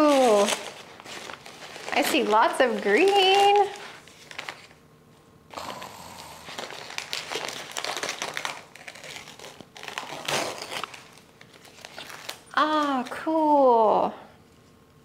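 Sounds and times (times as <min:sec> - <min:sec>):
paper crinkling and rustling: 0:00.0 - 0:04.8, 0:06.5 - 0:13.1.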